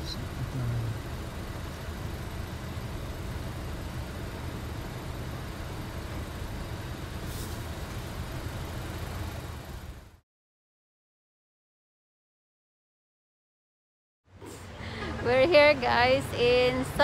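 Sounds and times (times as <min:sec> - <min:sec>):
car engine idling: 0:00.0 - 0:10.2.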